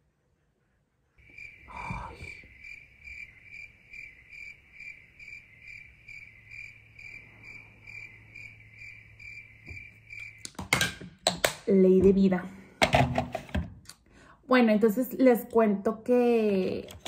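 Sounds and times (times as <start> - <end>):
cricket chirping: 1.1 - 11.1.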